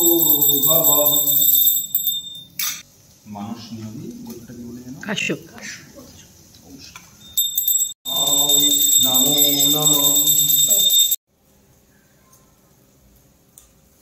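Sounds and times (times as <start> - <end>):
hand bell ringing rapidly: 0.0 - 2.4, 7.4 - 11.2.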